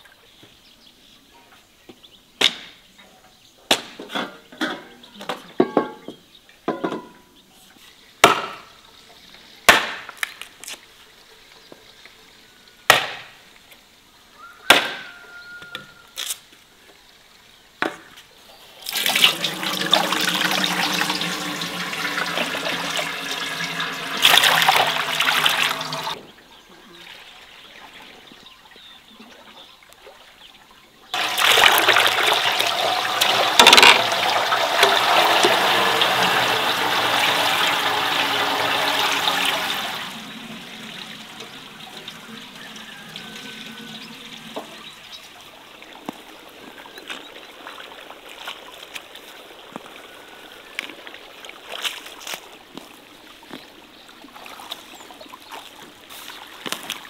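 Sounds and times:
wooden knocks of splitting planks: 0:08.2 - 0:08.6, 0:09.7 - 0:10.4, 0:12.9 - 0:13.3, 0:14.7 - 0:15.1
liquid pouring into pot: 0:18.9 - 0:26.2, 0:31.2 - 0:44.7.

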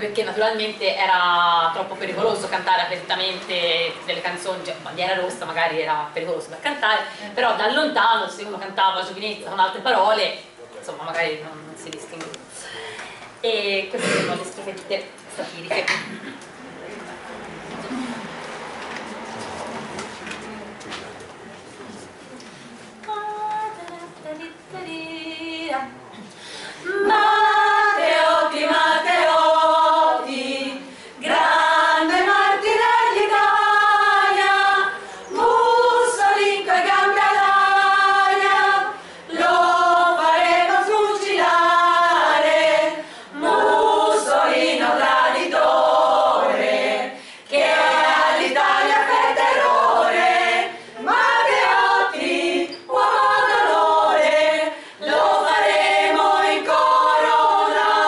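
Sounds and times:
women's choir singing a cappella: 0:23.1 - 0:26.0, 0:26.6 - 0:58.0.

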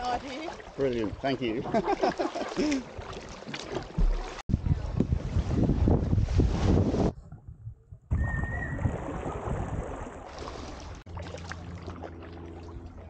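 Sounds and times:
water rushing around kayak: 0:00.0 - 0:07.1, 0:08.5 - 0:13.0
steady low hum: 0:11.0 - 0:13.0.

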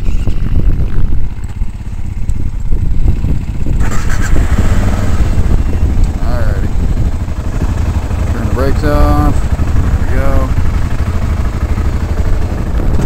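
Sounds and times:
motorcycle engine rumble: 0:00.0 - 0:13.0
wind buffeting microphone: 0:00.0 - 0:13.0.

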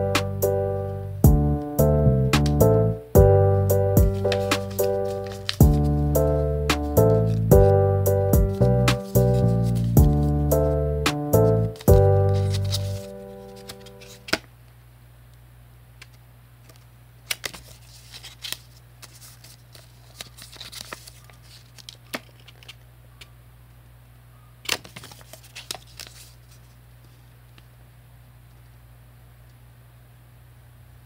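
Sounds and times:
steady low hum: 0:00.0 - 0:17.9
paper rustling: 0:04.1 - 0:07.8, 0:08.7 - 0:10.8, 0:11.4 - 0:14.4, 0:16.6 - 0:22.8, 0:24.7 - 0:27.3.

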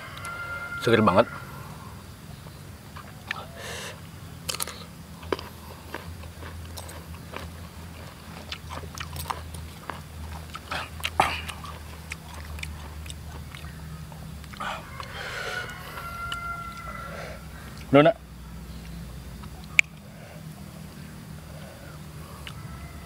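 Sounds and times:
crisp chewing crunches: 0:04.4 - 0:17.0.

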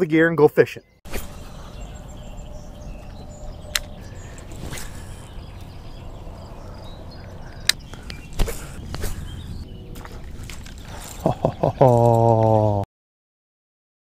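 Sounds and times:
birds chirping: 0:00.0 - 0:12.8
low rumble: 0:01.2 - 0:11.9
sharp clicks: 0:03.7 - 0:05.0, 0:07.2 - 0:09.0.

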